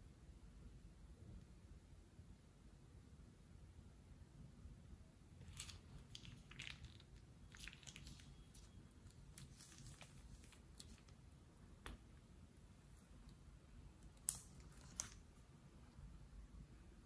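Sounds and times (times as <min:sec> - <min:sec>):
plastic piping bag crackling: 0:05.4 - 0:12.2, 0:14.0 - 0:15.5.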